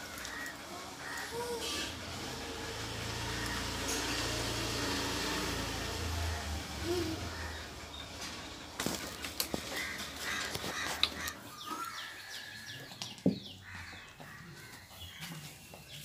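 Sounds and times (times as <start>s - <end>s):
puppies scuffling: 8.1s - 12.1s.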